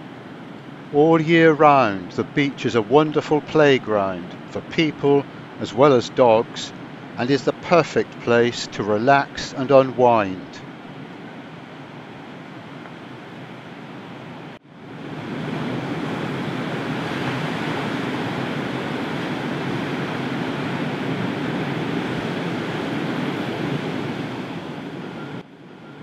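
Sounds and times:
wind: 0.0 - 26.0
surf washing onto beach: 14.8 - 25.4.

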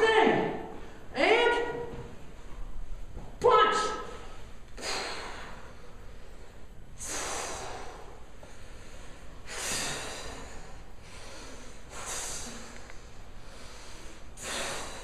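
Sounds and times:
forceful hissing exhales: 7.0 - 8.1, 9.4 - 12.9, 13.5 - 15.0.

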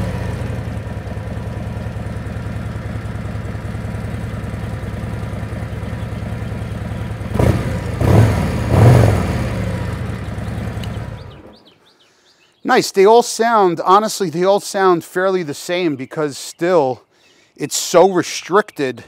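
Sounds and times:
engine revving: 0.0 - 11.7
motorcycle engine idling: 0.0 - 12.6.

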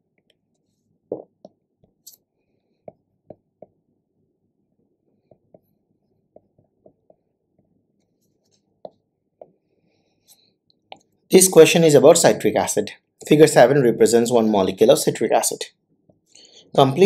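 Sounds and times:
stylus tapping on pen tablet: 2.8 - 3.8, 5.2 - 7.7, 8.8 - 9.6.

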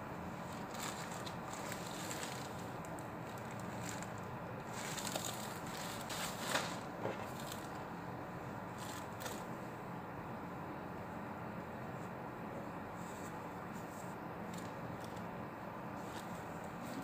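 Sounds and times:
shirt and wrapping crinkling: 0.4 - 7.8.

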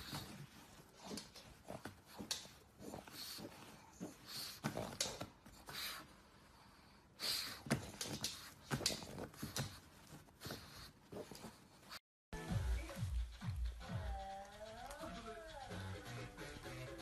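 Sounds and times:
dog snorting and snuffling: 0.0 - 6.1, 7.2 - 12.0.

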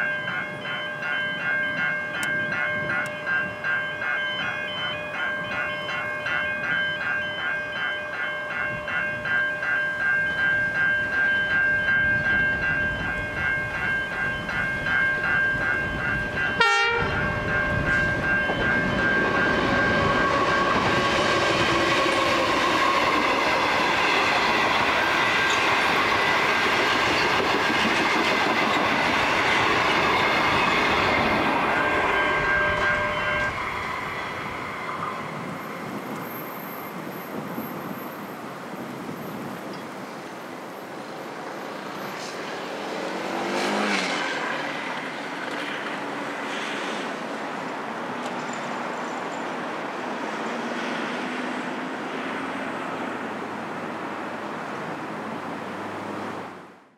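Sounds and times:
level crossing bells ringing: 0.0 - 35.9
train wheels rumbling and clacking: 10.2 - 38.2.

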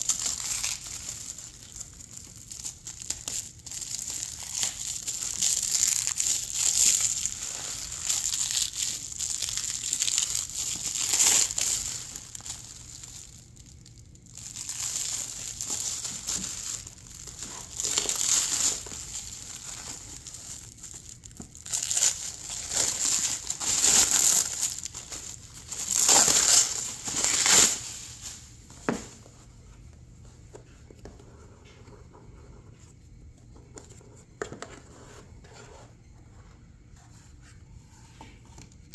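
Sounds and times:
plastic wrap crinkling: 0.0 - 29.0.

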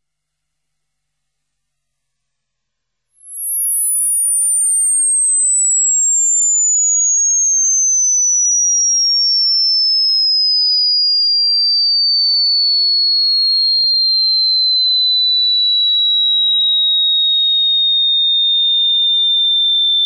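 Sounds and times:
descending sine-wave tone sweep: 2.1 - 18.0.

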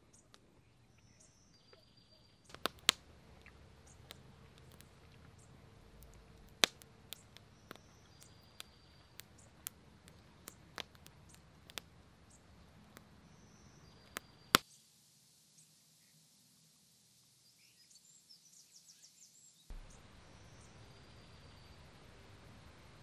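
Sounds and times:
bird chirping: 0.0 - 14.7, 17.4 - 23.0
woodland ambience: 0.0 - 23.0
campfire crackling and popping: 2.5 - 14.6, 19.7 - 23.0.

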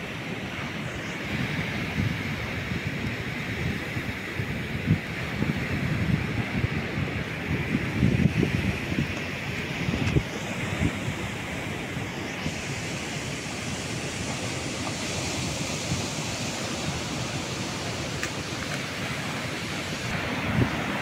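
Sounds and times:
wind on microphone: 0.0 - 21.0
surf breaking on rocks: 8.0 - 21.0.

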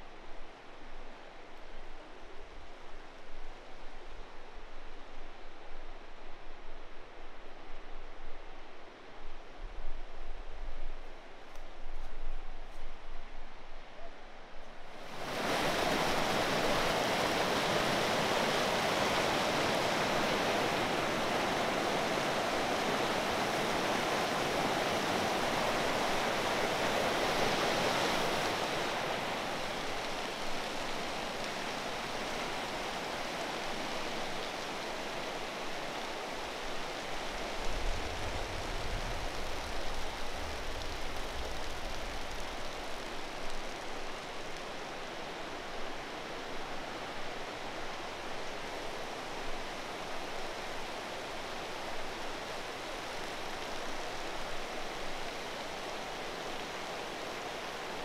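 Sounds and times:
stream water flowing: 15.0 - 58.0.

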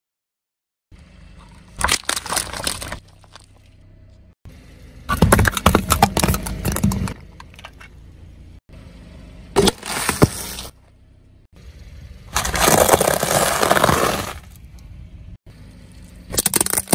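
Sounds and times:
car tyre crushing objects: 1.2 - 4.1, 5.0 - 8.0, 9.5 - 11.2, 12.2 - 14.7, 15.5 - 16.9.

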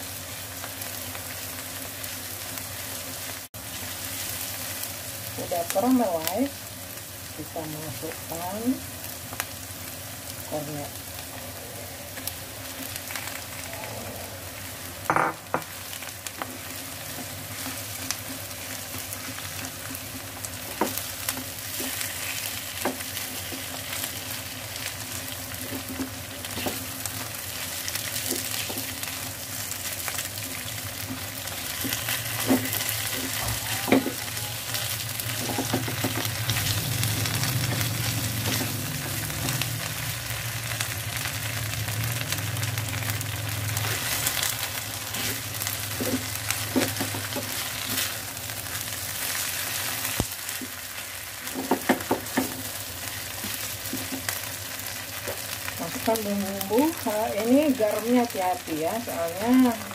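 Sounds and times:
food sizzling in hot oil: 0.0 - 59.9.

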